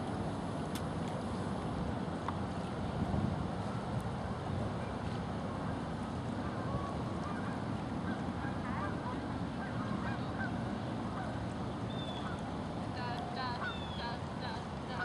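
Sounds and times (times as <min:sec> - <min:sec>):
wind noise rumble: 0:00.0 - 0:13.0
waterfowl calling: 0:06.4 - 0:12.5, 0:13.4 - 0:15.0.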